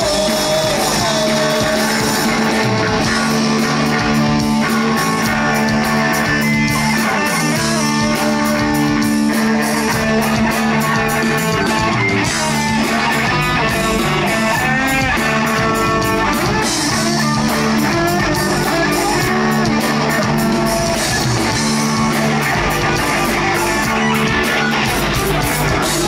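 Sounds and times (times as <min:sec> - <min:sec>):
drums: 0:00.0 - 0:26.0
electric guitars ringing: 0:00.0 - 0:26.0.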